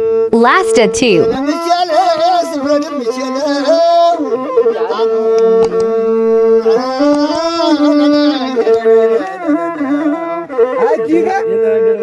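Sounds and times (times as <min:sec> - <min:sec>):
bowed one-string fiddle: 0:01.4 - 0:12.0
man singing: 0:06.6 - 0:10.8.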